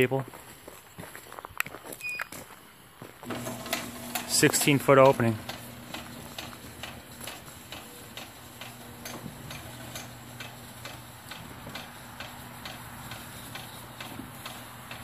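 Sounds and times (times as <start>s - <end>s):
garage door opener motor hum: 3.2s - 15.0s
even mechanical clicking: 3.3s - 15.0s.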